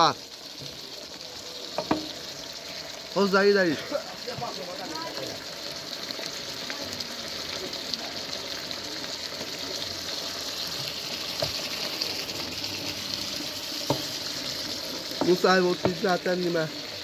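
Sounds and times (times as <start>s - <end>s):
stew sizzling in a pan: 0.0s - 17.0s
wooden spatula knocking on pan: 1.8s - 2.2s, 11.4s - 11.6s, 13.8s - 14.1s, 15.2s - 16.1s.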